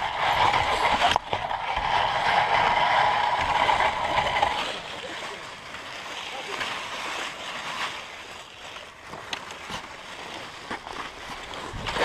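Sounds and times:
sled runners scraping over snow: 0.0 - 4.8.

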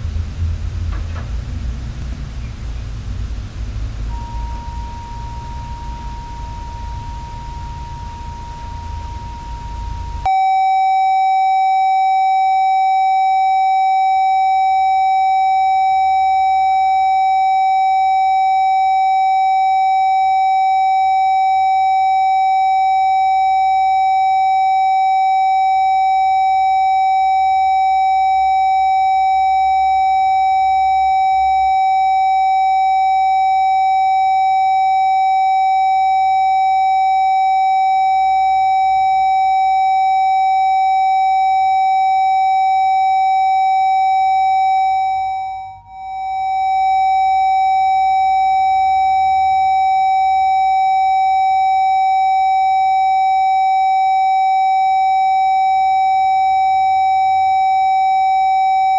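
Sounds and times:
air-raid siren steady tone: 4.0 - 58.9.

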